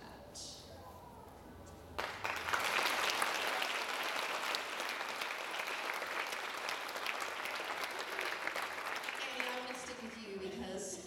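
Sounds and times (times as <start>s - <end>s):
audience applauding: 2.0s - 10.3s.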